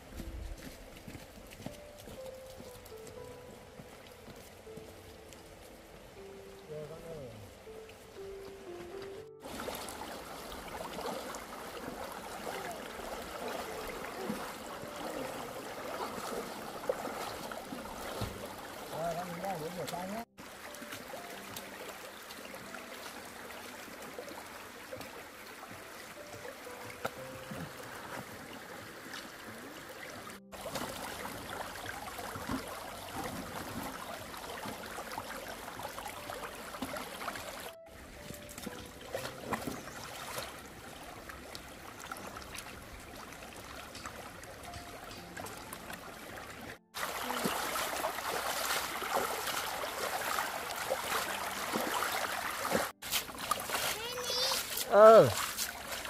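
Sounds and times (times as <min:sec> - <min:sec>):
stream running over stones: 0:00.0 - 0:56.0
splashing of hands in water: 0:30.5 - 0:34.9, 0:47.0 - 0:56.0.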